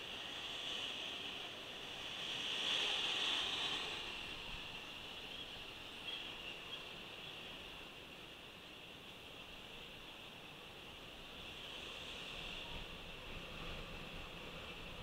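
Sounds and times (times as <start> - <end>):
hissing road and traffic noise: 0.0 - 15.0.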